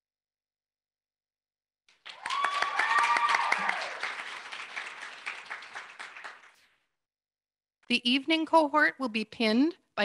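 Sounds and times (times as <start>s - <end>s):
small group applauding: 1.9s - 6.7s
high whooping cheer: 2.0s - 5.4s.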